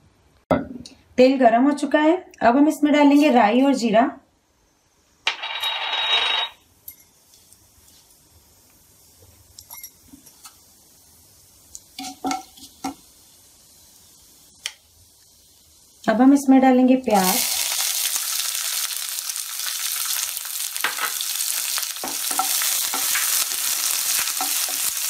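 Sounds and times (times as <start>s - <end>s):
seeds sizzling in hot oil: 6.8s - 25.0s.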